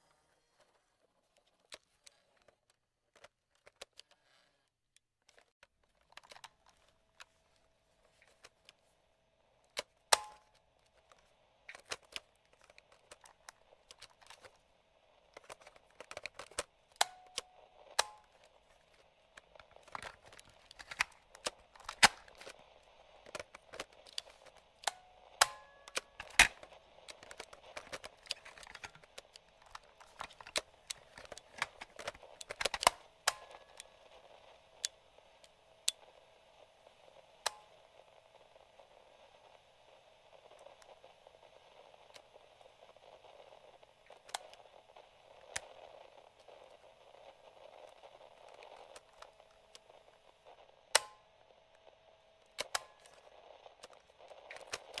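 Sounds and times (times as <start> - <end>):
faint radio static: 0.0 - 55.0
radio switches clicking: 9.6 - 14.6, 15.2 - 36.2, 47.2 - 55.0.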